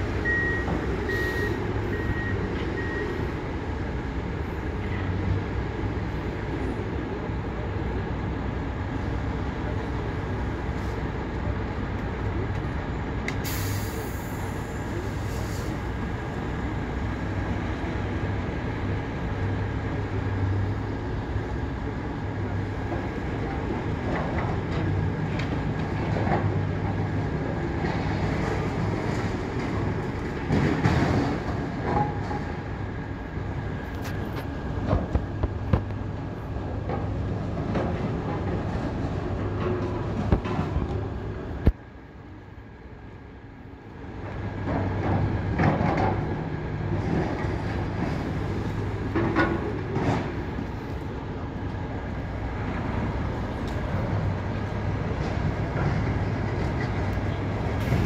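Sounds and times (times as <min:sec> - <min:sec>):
diesel engines droning: 0:00.0 - 0:58.0
high-pitched back-up beep: 0:00.2 - 0:03.2.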